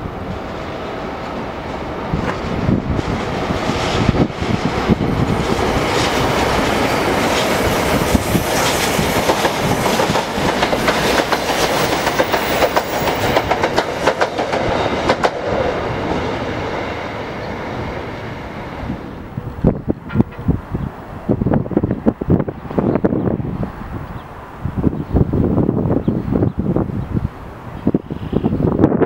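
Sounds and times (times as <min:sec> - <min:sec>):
train rumbling past: 0:00.0 - 0:29.0
wheels clicking over rail joints: 0:04.7 - 0:15.6.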